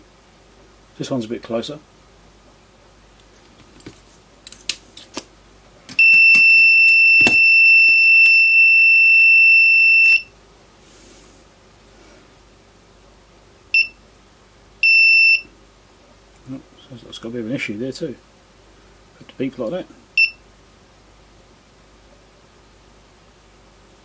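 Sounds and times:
soldering station alarm beeps: 6.0 - 10.3, 13.8 - 14.0, 14.8 - 15.5, 20.2 - 20.4.

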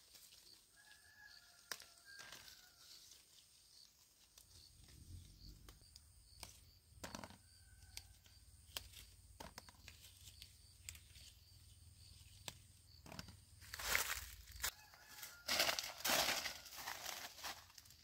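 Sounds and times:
rustles and clicks of fruit handling: 0.0 - 18.0.

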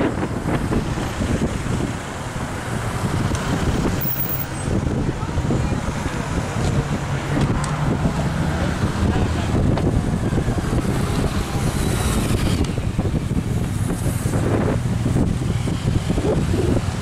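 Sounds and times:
low hum of vehicles: 0.0 - 17.0
wind buffeting microphone: 0.0 - 17.0
faint voices: 4.7 - 11.8.

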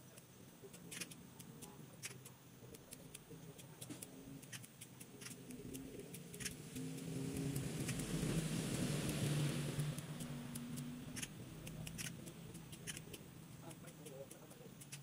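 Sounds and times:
pruning shears snipping twigs: 9.8 - 13.2.

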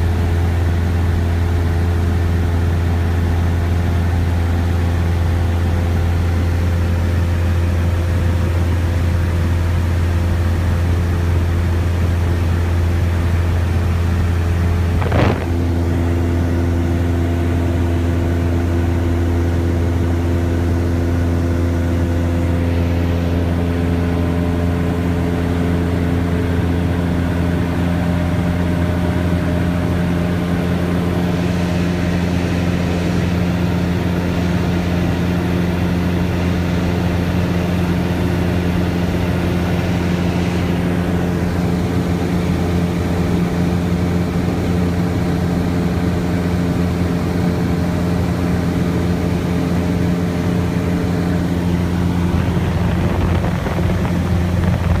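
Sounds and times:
airplane engine drone in cabin: 0.0 - 55.0.

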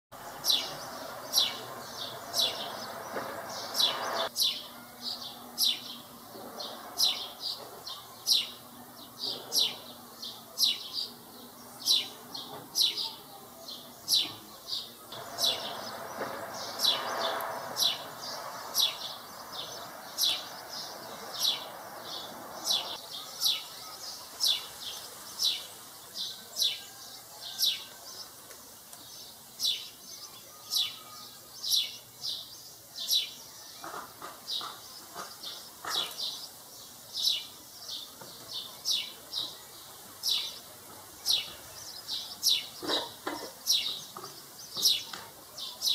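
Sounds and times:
young sparrow chirping: 0.3 - 6.0, 6.6 - 26.9.

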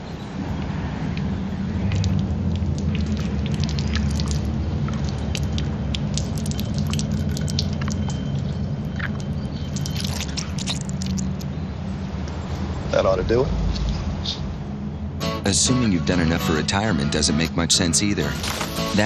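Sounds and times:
small sharp crackles and ticks: 1.9 - 11.5.

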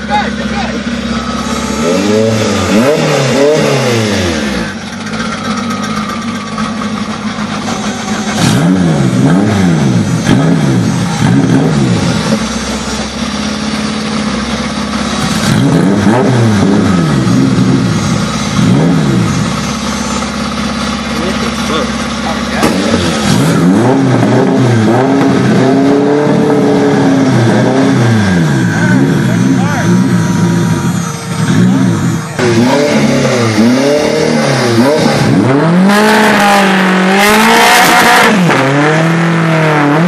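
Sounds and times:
car engines idling: 0.0 - 37.6
engines revving: 0.0 - 40.0.

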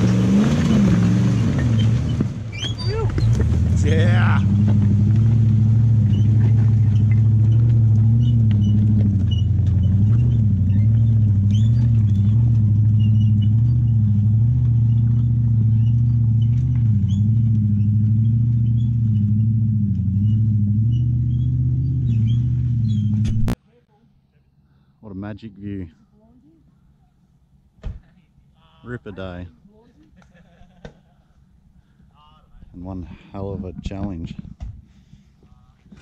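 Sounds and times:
vehicle engine driving: 0.0 - 23.6.

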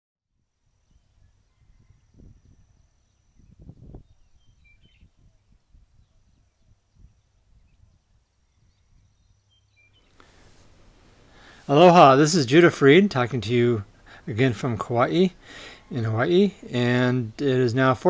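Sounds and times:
short bird chirp: 0.9 - 5.1
wind buffeting microphone: 0.9 - 9.4.

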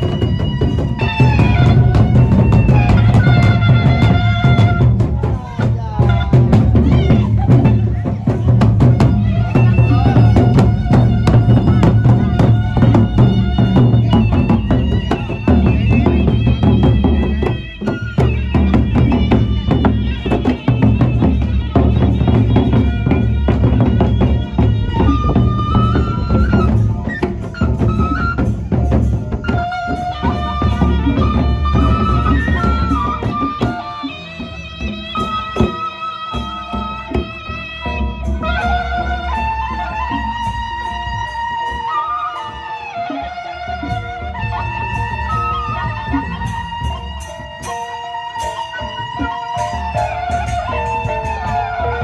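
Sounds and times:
barrel drums beaten: 0.0 - 41.7
high melody line: 0.0 - 52.0.

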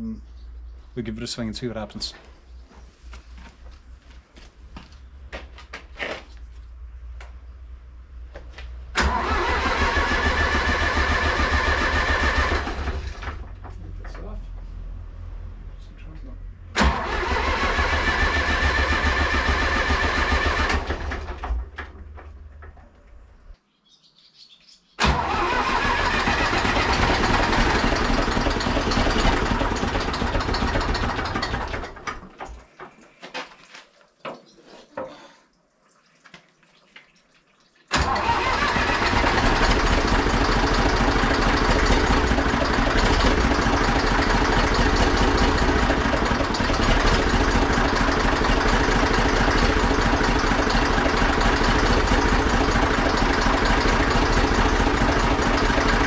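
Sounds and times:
tractor diesel engine starting: 8.9 - 14.4, 16.7 - 23.6, 25.0 - 32.7, 37.9 - 56.0.

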